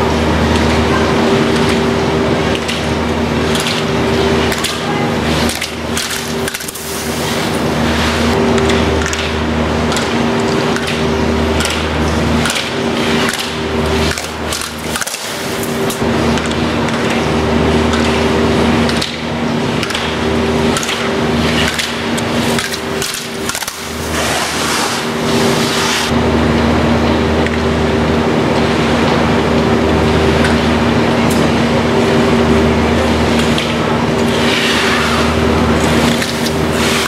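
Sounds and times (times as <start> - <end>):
machinery hum: 0.0 - 37.0
skis carving on snow: 23.7 - 26.1.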